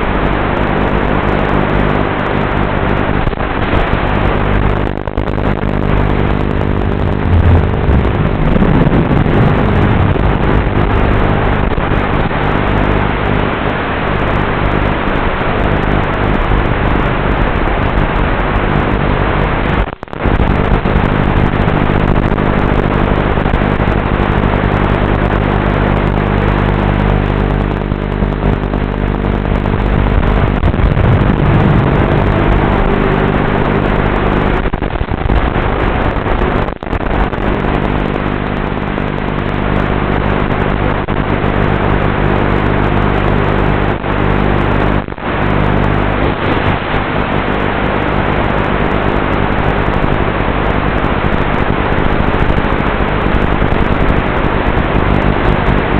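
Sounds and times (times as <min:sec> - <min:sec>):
quadcopter motors humming: 0:07.0 - 0:10.6, 0:30.7 - 0:34.7
propeller hiss: 0:30.0 - 0:34.8.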